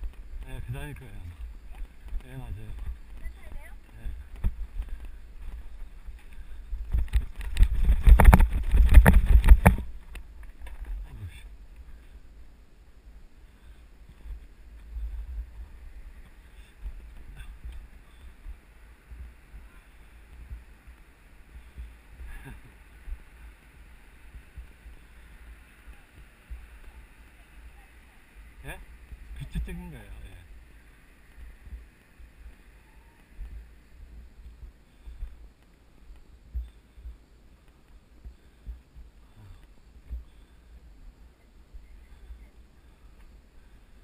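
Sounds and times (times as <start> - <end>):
wind buffeting microphone: 0.0 - 12.4
bike rattling over bumps: 4.3 - 11.1.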